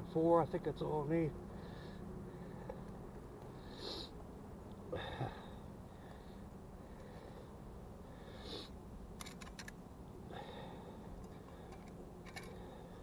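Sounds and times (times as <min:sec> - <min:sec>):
man sniffing: 0:03.7 - 0:04.2.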